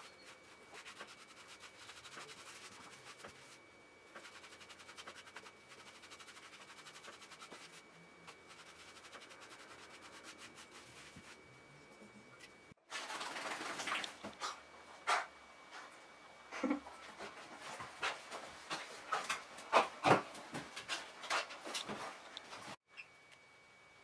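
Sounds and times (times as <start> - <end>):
scrubbing wet dog fur: 0.0 - 11.4.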